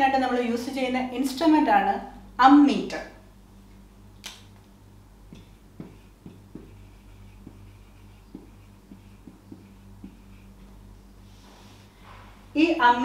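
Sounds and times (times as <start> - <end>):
low steady hum: 0.0 - 13.0
marker tapping and squeaking: 5.3 - 10.4.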